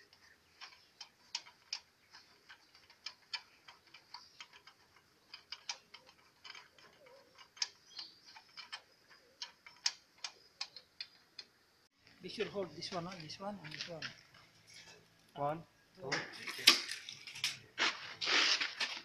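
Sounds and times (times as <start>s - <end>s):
metallic clicks of tools on engine: 0.0s - 11.6s.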